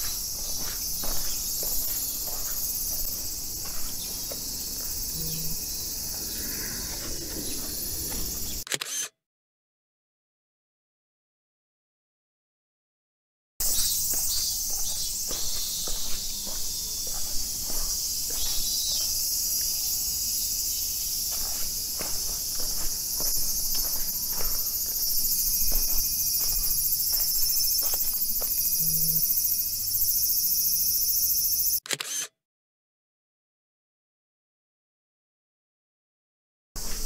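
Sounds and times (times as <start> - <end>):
footsteps on pavement: 0.0 - 6.3, 6.9 - 8.6, 13.6 - 19.9, 20.9 - 29.2
insects chorus: 0.0 - 8.7, 13.6 - 31.8, 36.8 - 37.0.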